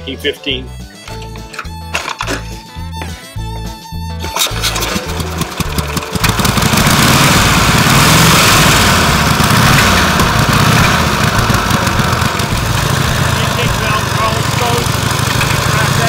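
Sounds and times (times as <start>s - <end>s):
motorcycle engine starting and running: 4.2s - 16.0s.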